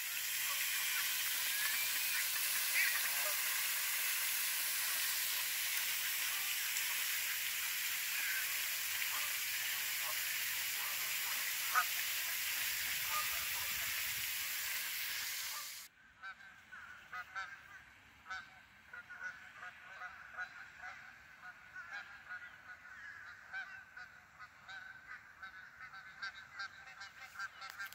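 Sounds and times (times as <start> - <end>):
geese honking: 0.0 - 14.2, 15.4 - 27.9
steady hiss: 0.0 - 15.9.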